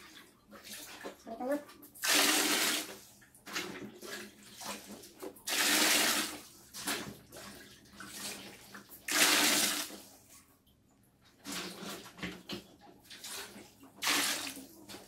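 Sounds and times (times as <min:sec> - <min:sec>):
water pouring into paddling pool: 0:01.9 - 0:10.2, 0:13.0 - 0:15.0.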